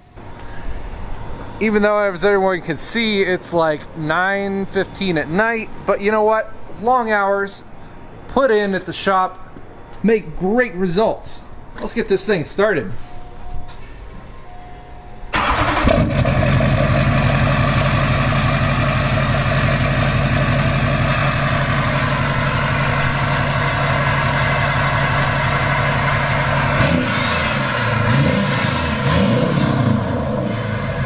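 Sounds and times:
diesel engine starting and idling: 15.3s - 31.0s.

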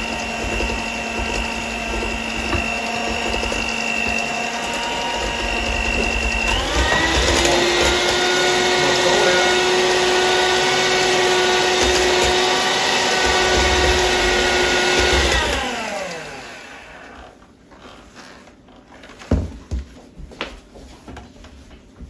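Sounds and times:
electric hand mixer whirring: 0.0s - 17.4s.

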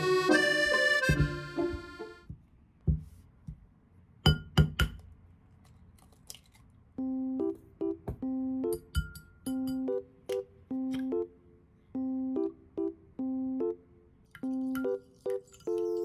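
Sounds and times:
piano music: 0.0s - 2.2s, 7.0s - 8.9s, 9.5s - 11.4s, 12.0s - 13.8s, 14.4s - 16.0s
background music: 0.0s - 2.3s, 7.0s - 8.9s
egg tapping on ceramic plate: 4.2s - 5.1s.

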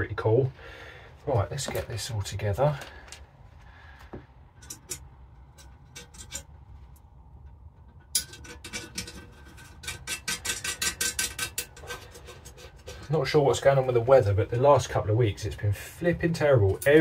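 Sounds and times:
small metal parts clicking and scraping: 4.5s - 13.1s.

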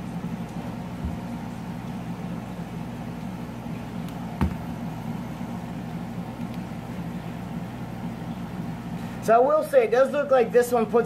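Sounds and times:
air pump motor humming: 0.0s - 11.0s
sharp knock: 4.4s - 4.6s.

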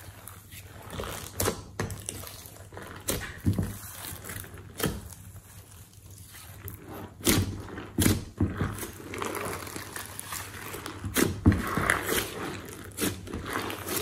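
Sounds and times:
slime squelching and crackling: 0.0s - 14.0s.

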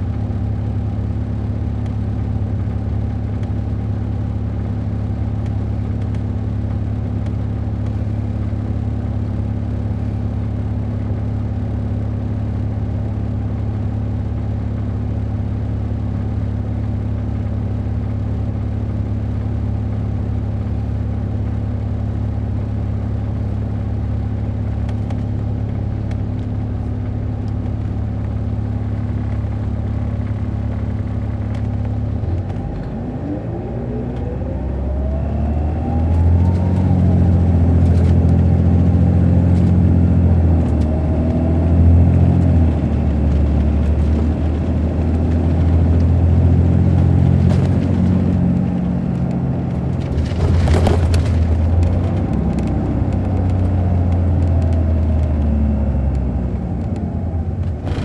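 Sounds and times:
bus diesel engine running: 0.0s - 58.0s
rising whine: 31.3s - 58.0s.

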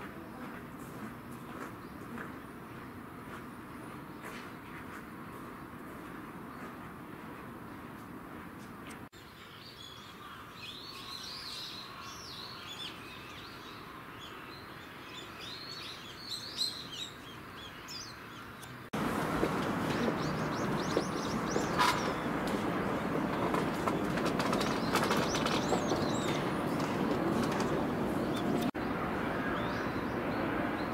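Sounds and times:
small birds chirping: 9.2s - 30.9s.

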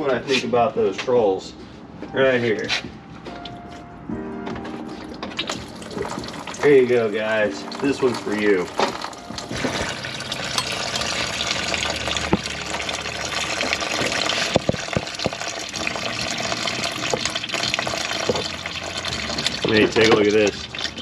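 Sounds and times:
coolant pouring in a stream: 5.4s - 21.0s.

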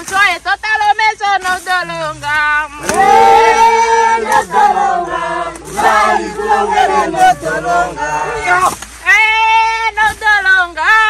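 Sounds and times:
group of voices singing: 1.4s - 9.2s.

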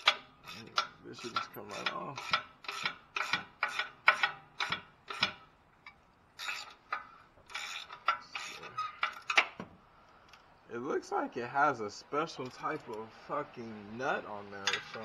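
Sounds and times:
hand ratchet clicking: 0.0s - 5.4s.

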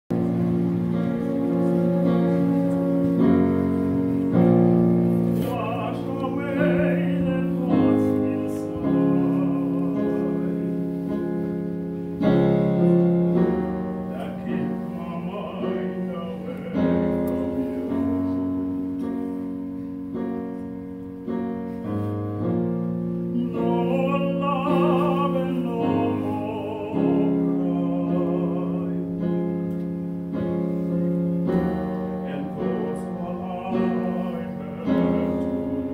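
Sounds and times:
male vocal quartet singing: 5.3s - 10.7s, 14.0s - 18.0s, 23.4s - 29.2s, 32.2s - 35.9s.

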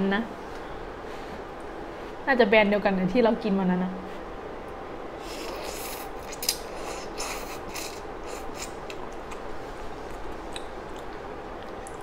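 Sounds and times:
person slurping noodles: 5.2s - 8.8s.

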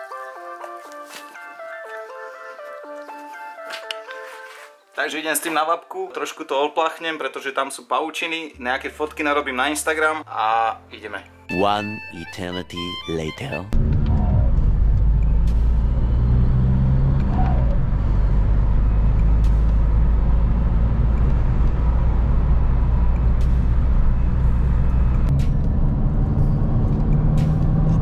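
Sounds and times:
car engine droning: 13.8s - 28.0s
tyre and road noise: 13.8s - 28.0s.

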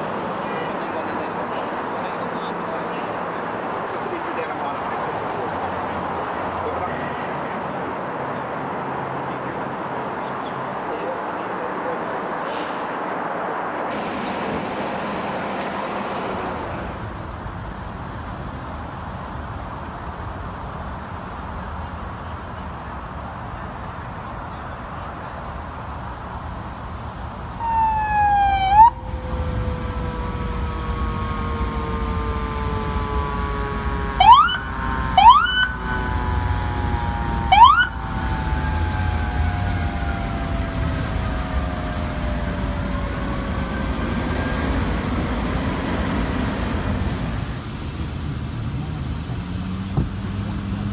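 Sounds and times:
traffic noise: 0.0s - 50.9s
emergency vehicle sirens: 13.5s - 50.9s
siren whoops: 27.6s - 43.8s.

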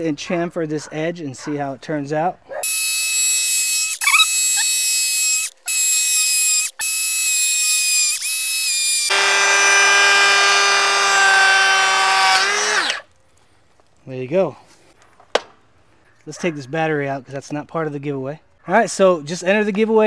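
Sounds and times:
cordless planer whining: 2.6s - 13.0s.

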